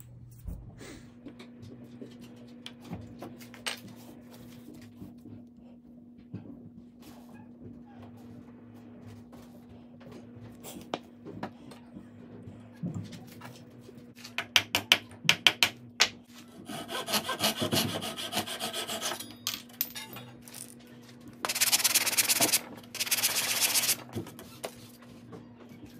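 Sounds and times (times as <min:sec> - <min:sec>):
saw rasping through wood: 0:16.5 - 0:19.2
hand sanding: 0:21.5 - 0:24.0.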